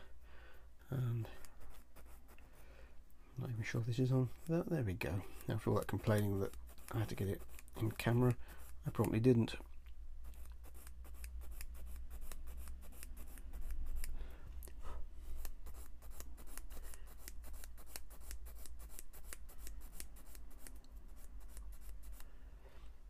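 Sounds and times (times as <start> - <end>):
sanding stick rasping on plastic: 4.0 - 9.3, 15.4 - 22.3.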